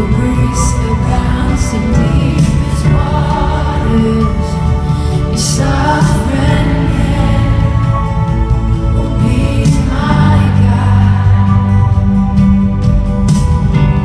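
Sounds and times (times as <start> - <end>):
heavy bass: 0.0 - 14.0
live worship band with singers: 0.0 - 14.0.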